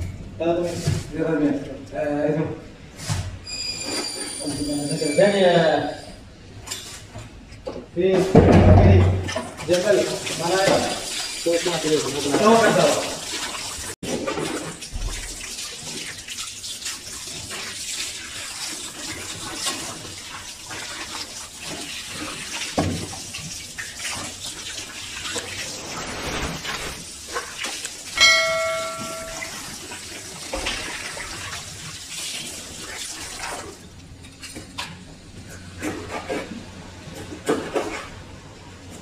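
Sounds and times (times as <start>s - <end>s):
water running from a hose: 9.6s - 33.9s
short multi-pitch ringing tone: 28.2s - 29.8s.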